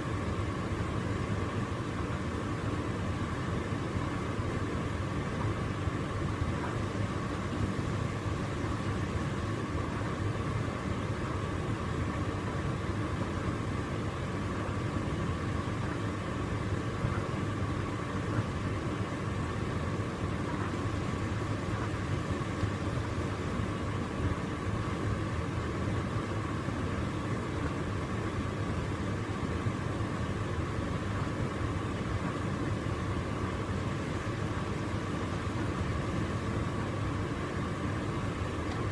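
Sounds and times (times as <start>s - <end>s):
thin steady whine: 0.0s - 38.9s
tumble dryer running: 0.0s - 38.9s.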